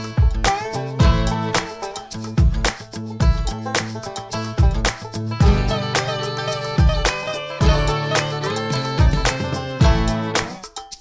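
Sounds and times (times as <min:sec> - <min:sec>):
guitar: 0:00.0 - 0:11.0
steady drum beat: 0:00.0 - 0:11.0.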